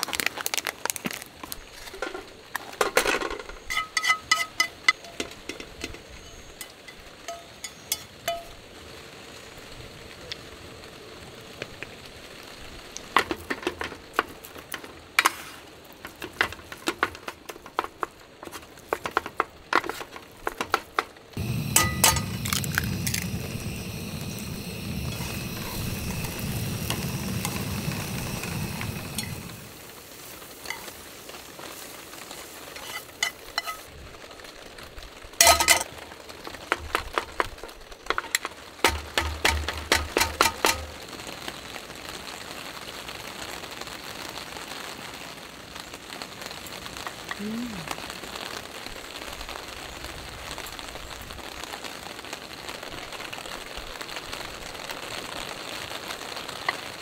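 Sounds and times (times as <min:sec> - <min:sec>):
eggs frying in a pan: 0:00.0 - 0:57.0
metal utensils clinking: 0:01.9 - 0:08.6, 0:21.4 - 0:23.4, 0:24.9 - 0:29.6, 0:32.7 - 0:33.9, 0:35.4 - 0:35.9, 0:38.1 - 0:41.0.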